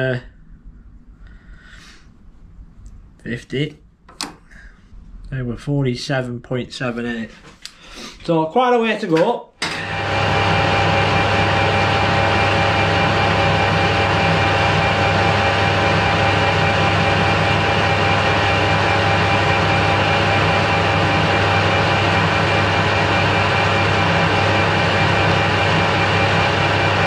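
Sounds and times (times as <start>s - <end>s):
metal lathe running: 9.6s - 27.0s.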